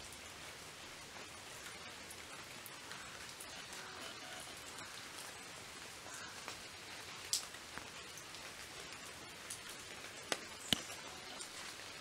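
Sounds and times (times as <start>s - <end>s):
faint outdoor hiss: 0.0s - 12.0s.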